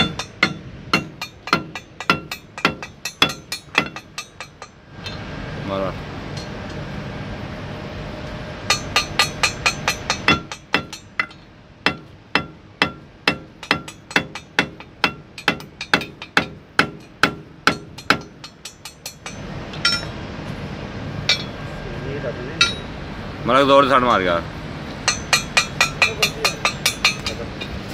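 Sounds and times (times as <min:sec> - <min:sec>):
hammer striking steel: 0:00.0 - 0:05.2, 0:06.3 - 0:06.6, 0:08.7 - 0:20.2, 0:21.2 - 0:21.7, 0:22.6 - 0:23.0, 0:25.0 - 0:27.7.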